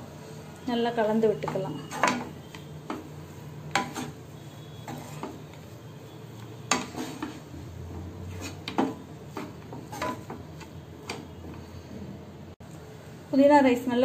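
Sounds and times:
wooden spatula scraping a pan: 1.3 - 11.9.

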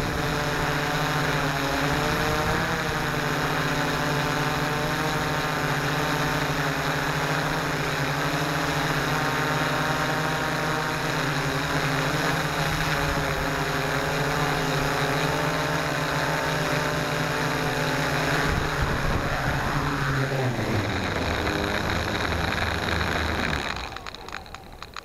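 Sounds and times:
drone propellers whirring: 0.0 - 25.0
wind: 0.0 - 25.0
grass crackling against microphone: 17.7 - 25.0.

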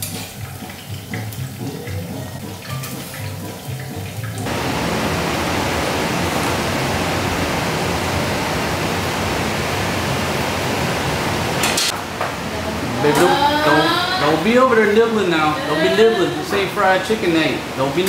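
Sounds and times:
chicken deep-frying in hot oil: 0.0 - 12.0.

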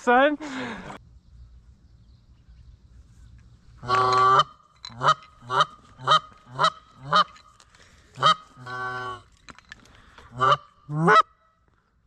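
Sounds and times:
goose call honks and clucks: 3.8 - 7.4, 8.2 - 9.3, 10.3 - 11.4.

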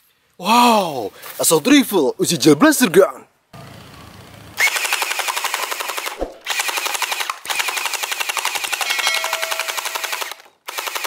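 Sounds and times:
toy blaster firing full auto: 4.6 - 11.0.

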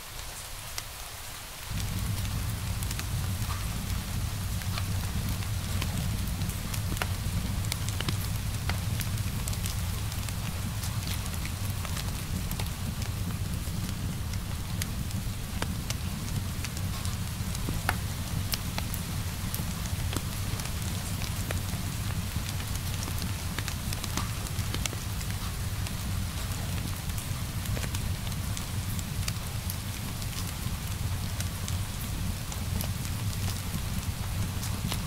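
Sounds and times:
fire popping and crackling: 1.6 - 35.0
low rumble of flames: 1.6 - 35.0.

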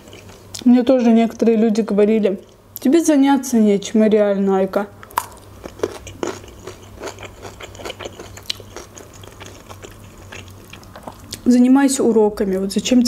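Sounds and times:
crunchy chewing: 5.1 - 11.5.

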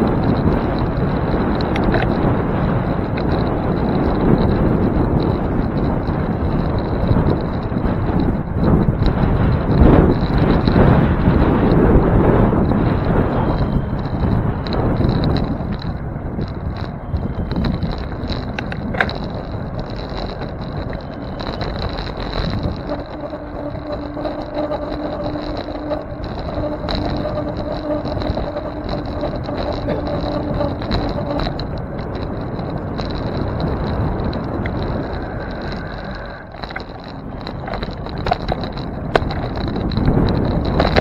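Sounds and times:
bicycle tyre noise: 0.0 - 41.0
low steady hum: 0.0 - 41.0
rushing wind: 0.0 - 41.0
traffic: 0.0 - 41.0
thin high whine: 9.8 - 41.0.

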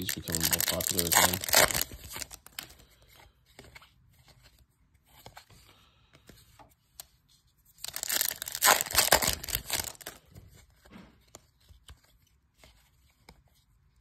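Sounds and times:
foil wrapper crinkling and tearing: 0.0 - 2.6, 7.8 - 10.2
cards rustling: 0.0 - 13.6.

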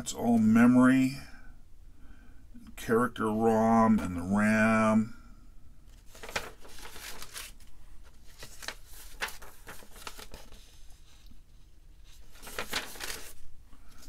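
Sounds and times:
paper rustling: 5.9 - 14.0.

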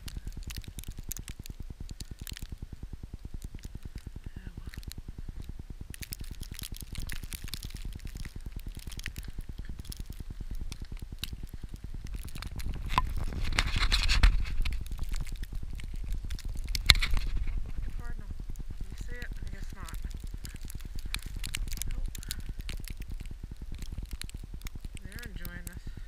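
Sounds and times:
wind buffeting microphone: 3.3 - 26.0
snow crunching and scraping: 12.4 - 23.0.

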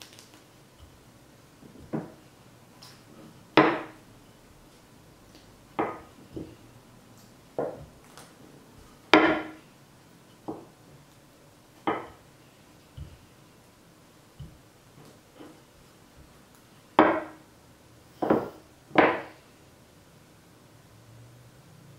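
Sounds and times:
rolling pin knocking on cutting board: 1.6 - 2.2, 3.6 - 4.0, 5.8 - 6.6, 7.6 - 8.0, 9.1 - 9.6, 11.8 - 12.2, 14.4 - 14.6, 17.0 - 17.4, 18.2 - 19.4.

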